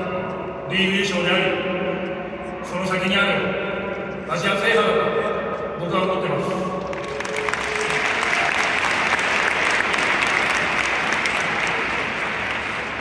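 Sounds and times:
stadium crowd applauding: 6.8s - 13.0s.

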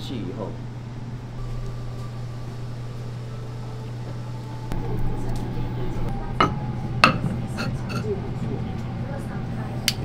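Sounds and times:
steady low hum: 0.0s - 10.0s
tableware clinking: 6.4s - 8.2s.

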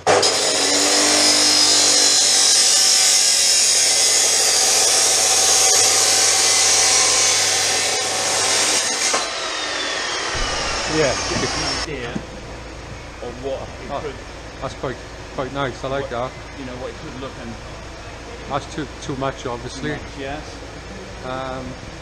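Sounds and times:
chop saw cutting steel pipe: 0.0s - 11.9s.

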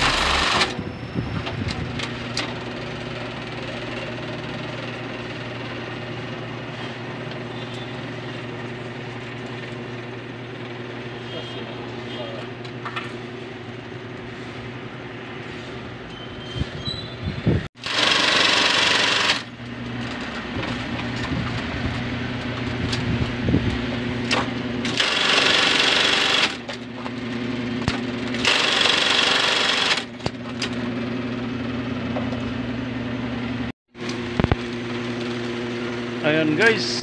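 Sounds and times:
sewing machine motor hum: 0.0s - 0.7s, 17.8s - 19.8s, 24.8s - 30.2s
sewing machine rattling: 0.0s - 0.7s, 17.8s - 19.5s, 24.8s - 26.7s, 28.3s - 30.2s.

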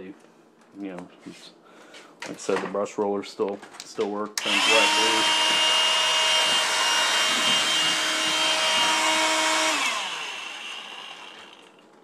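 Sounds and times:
vacuum cleaner whine: 4.4s - 11.8s
vacuum motor winding down: 4.4s - 11.8s.

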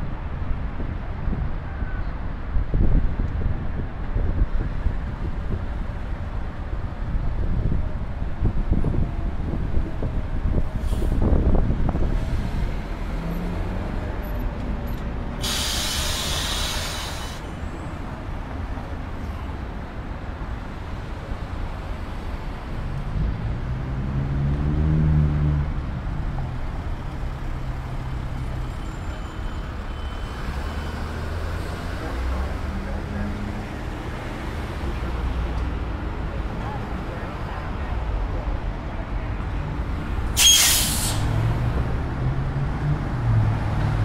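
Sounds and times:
street traffic: 0.0s - 44.0s
bus approaching: 2.7s - 44.0s
bus pulling away: 10.5s - 18.2s, 22.5s - 36.2s, 39.8s - 44.0s
air brakes hissing: 10.8s - 11.3s, 15.4s - 17.7s, 40.2s - 41.4s.

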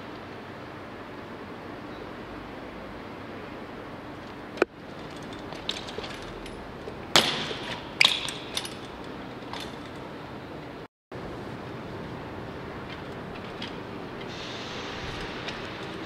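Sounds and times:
street background noise: 0.0s - 16.0s
bike hitting concrete: 4.6s - 10.0s
chain and frame rattling: 4.8s - 10.1s.

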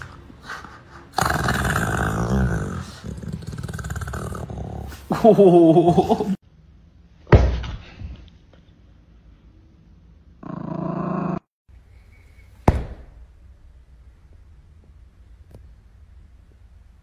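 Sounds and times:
small dog growling: 1.1s - 5.0s, 10.4s - 11.5s
sharp knock: 12.6s - 13.2s
thump: 12.6s - 13.2s.

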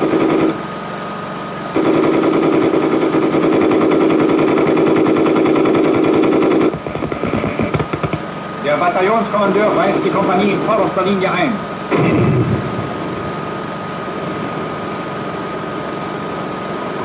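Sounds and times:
machine gun firing: 0.0s - 0.6s, 1.7s - 8.3s, 11.8s - 15.0s.

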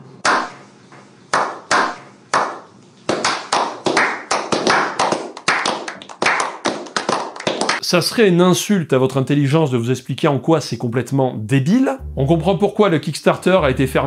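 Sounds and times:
hand claps and applause: 2.4s - 7.8s.

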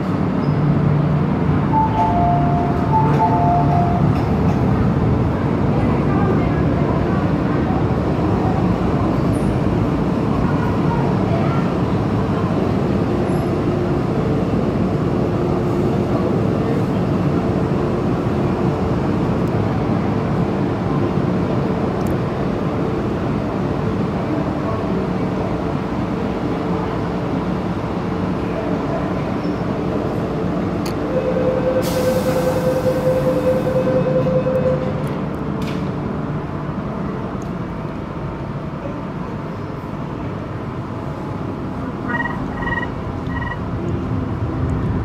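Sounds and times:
train wheels rumbling on rail: 0.0s - 45.0s
steady tone: 1.7s - 4.5s.

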